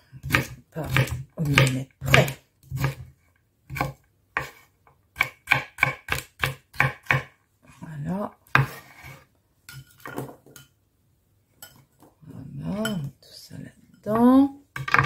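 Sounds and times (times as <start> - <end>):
knife chopping on wooden board: 0.2 - 3.1, 3.7 - 4.6, 5.2 - 7.3.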